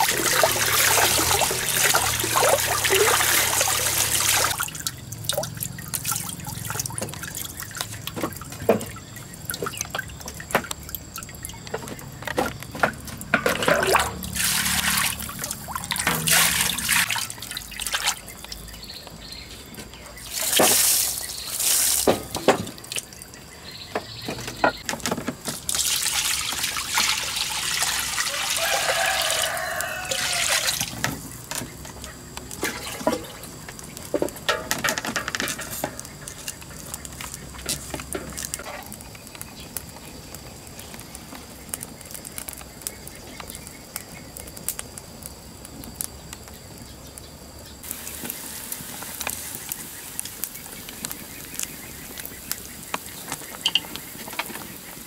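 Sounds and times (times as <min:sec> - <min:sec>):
water poured into wok: 0:00.0 - 0:07.9, 0:13.3 - 0:18.2, 0:25.6 - 0:31.0, 0:32.6 - 0:33.4
water splashing from dipper: 0:00.0 - 0:11.6, 0:12.8 - 0:18.4, 0:25.6 - 0:31.0, 0:32.5 - 0:33.6
water pouring over greens: 0:00.0 - 0:18.8, 0:20.2 - 0:23.5, 0:25.4 - 0:31.5, 0:32.4 - 0:34.0.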